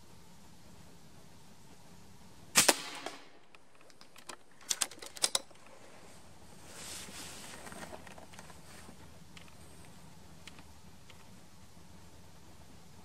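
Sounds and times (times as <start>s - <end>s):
air rifle shot: 2.5s - 3.5s
rifle action metallic clicks: 2.6s - 5.7s.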